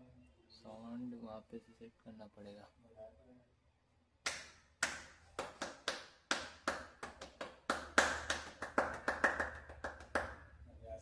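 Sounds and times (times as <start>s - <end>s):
hand clapping: 4.2s - 10.6s.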